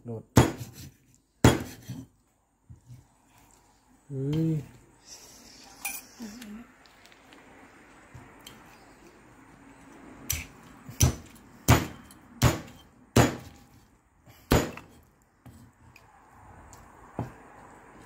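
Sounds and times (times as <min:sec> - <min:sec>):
cleaver chopping on wooden block: 0:00.4 - 0:02.0, 0:10.3 - 0:13.6, 0:14.5 - 0:15.0.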